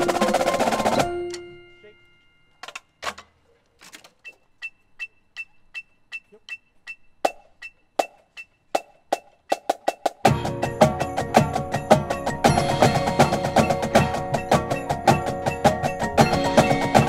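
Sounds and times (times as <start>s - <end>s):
metronome ticking: 4.1s - 17.0s.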